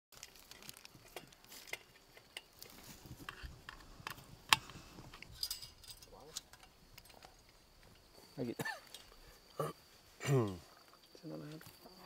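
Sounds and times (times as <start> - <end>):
metal hardware clicking and clinking: 3.3 - 8.1.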